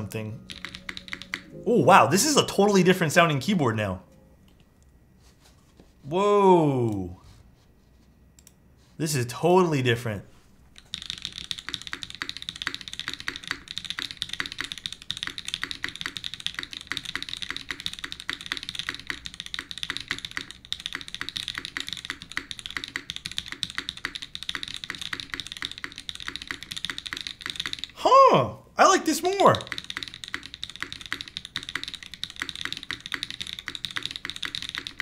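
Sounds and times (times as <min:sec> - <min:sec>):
mechanical keyboard typing: 0:00.0 - 0:01.6, 0:10.8 - 0:28.0, 0:29.2 - 0:35.0.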